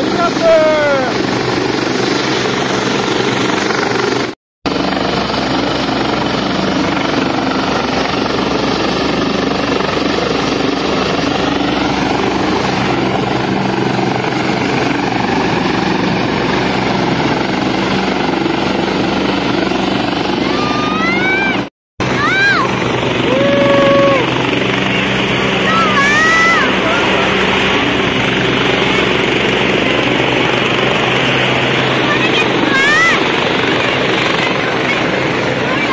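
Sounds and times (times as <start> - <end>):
helicopter turbine and rotor: 0.0 - 35.9.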